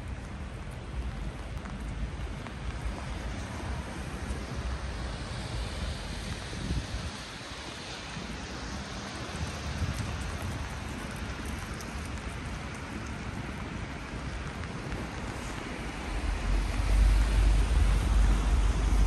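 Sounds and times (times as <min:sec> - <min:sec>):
faint rain drop ticks: 0:00.0 - 0:06.4, 0:07.0 - 0:18.6
steady rain hiss: 0:00.0 - 0:19.0
low rumble: 0:15.2 - 0:19.0.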